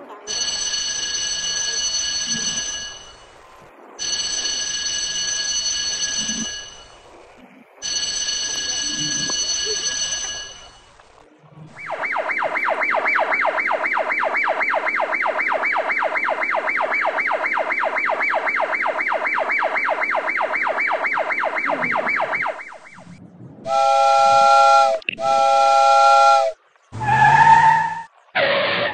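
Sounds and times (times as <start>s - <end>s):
fast warbling whistle tone: 11.6s - 28.1s
chorded train whistle blasts: 23.7s - 26.6s.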